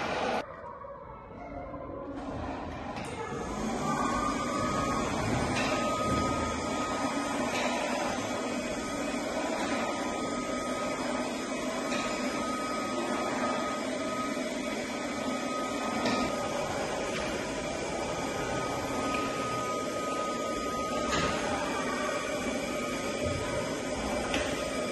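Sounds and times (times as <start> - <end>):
robot vacuum whirring hum: 2.2 - 24.9.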